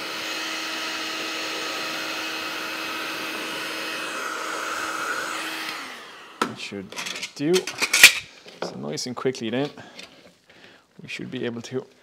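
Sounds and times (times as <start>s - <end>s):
heat gun fan humming: 0.0s - 6.5s.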